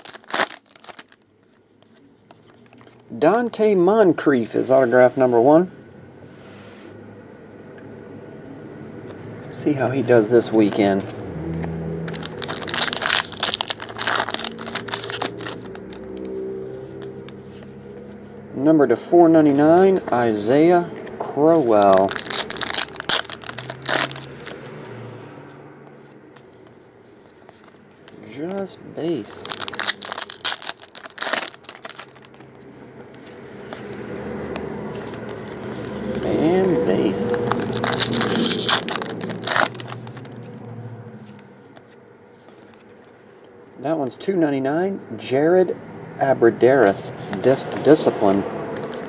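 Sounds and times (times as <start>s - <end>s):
foil wrapper crinkling: 0.0s - 1.3s, 12.1s - 16.3s, 21.7s - 24.7s, 29.1s - 32.5s, 37.4s - 40.4s
cards rustling: 0.0s - 3.6s, 10.1s - 18.2s, 19.4s - 40.5s, 41.2s - 43.3s, 46.8s - 48.1s.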